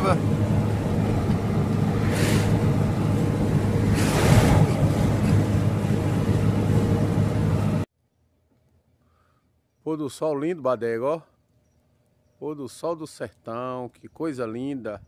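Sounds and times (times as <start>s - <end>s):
road noise inside a vehicle: 0.0s - 7.9s
traffic rushing past: 0.0s - 7.9s
vehicle engine: 0.0s - 7.9s.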